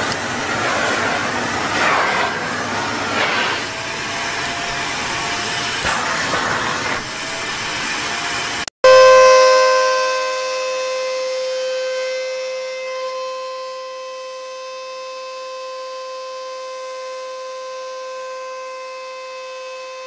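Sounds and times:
vacuum cleaner suction hiss: 0:00.0 - 0:08.7
vacuum cleaner motor whining: 0:00.0 - 0:20.0.

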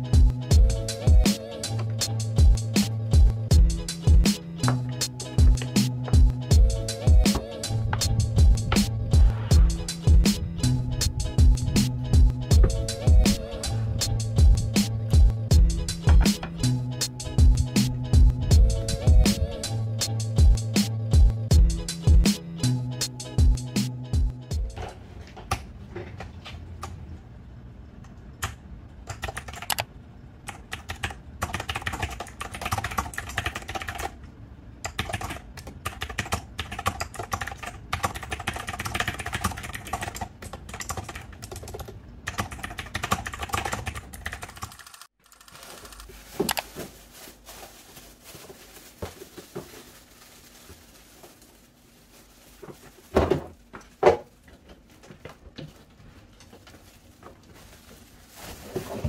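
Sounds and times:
fast typing key clicks: 0:28.4 - 0:29.9, 0:34.8 - 0:45.5.

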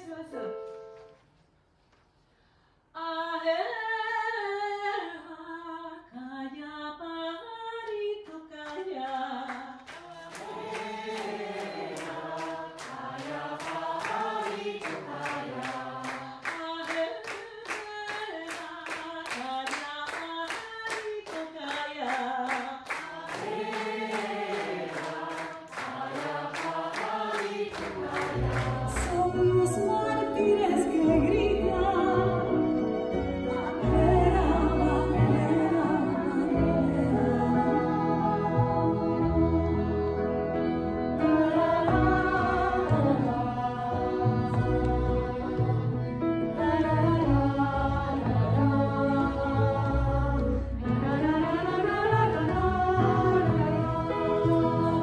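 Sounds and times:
hands clapping: 0:07.8 - 0:29.4
group singing unaccompanied: 0:10.0 - 0:17.0, 0:22.9 - 0:30.3, 0:33.4 - 0:40.5, 0:41.3 - 0:55.0.

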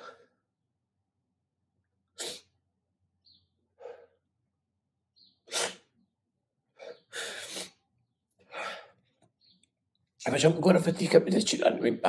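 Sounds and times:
person breathing sharply: 0:00.0 - 0:00.4, 0:06.8 - 0:07.8, 0:08.5 - 0:09.0.

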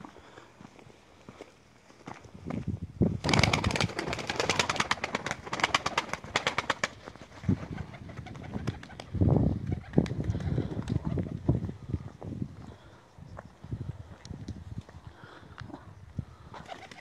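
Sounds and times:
pigeon wings flapping: 0:03.2 - 0:11.3, 0:16.5 - 0:17.0.

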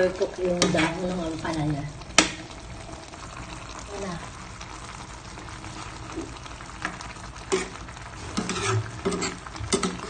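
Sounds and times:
utensil scraping metal pot: 0:00.2 - 0:02.5, 0:07.4 - 0:10.0
hiss from hot broth: 0:00.8 - 0:10.0.

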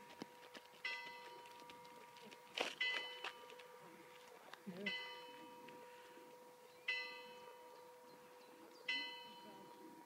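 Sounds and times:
faint church bell tolling: 0:00.8 - 0:01.9, 0:02.8 - 0:03.8, 0:04.8 - 0:10.0.

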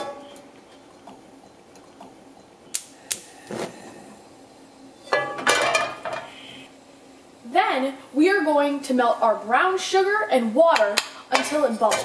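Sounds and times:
gas flame catching: 0:02.7 - 0:03.8.

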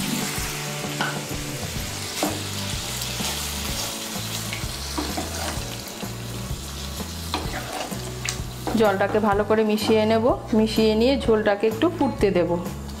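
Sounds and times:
curry sizzling in a pan: 0:00.0 - 0:13.0
soft background music: 0:00.0 - 0:13.0
spatula scraping a pan: 0:04.8 - 0:05.7, 0:07.3 - 0:09.3.

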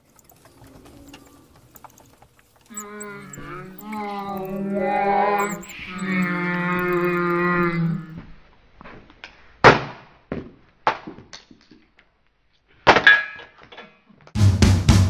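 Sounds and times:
drum beat: 0:14.4 - 0:15.0.

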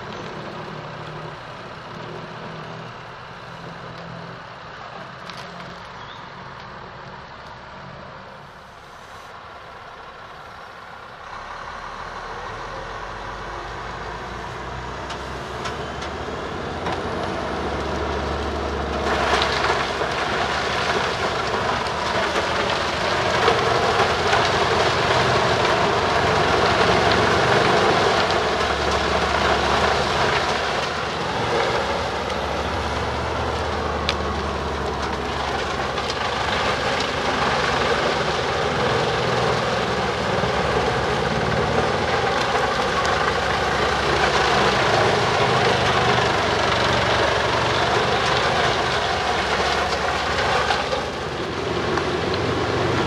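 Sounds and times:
wood chipper chipping: 0:00.0 - 0:06.0, 0:11.1 - 0:53.0
low engine drone: 0:07.8 - 0:20.5.

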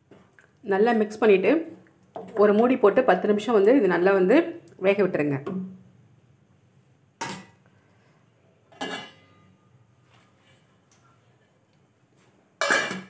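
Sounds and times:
metal cookware clinking: 0:07.2 - 0:07.6, 0:08.7 - 0:09.6, 0:12.6 - 0:13.0
metal lid clanking on pan: 0:12.6 - 0:13.0.

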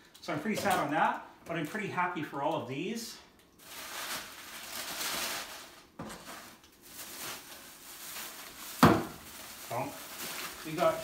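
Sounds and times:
plastic bag rustling: 0:03.6 - 0:11.0.

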